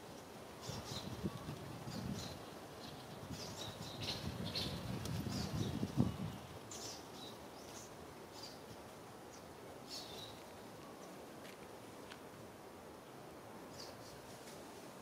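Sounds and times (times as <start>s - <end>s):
small birds chirping: 0.0s - 11.2s, 13.7s - 14.3s
faint background hiss: 0.0s - 15.0s.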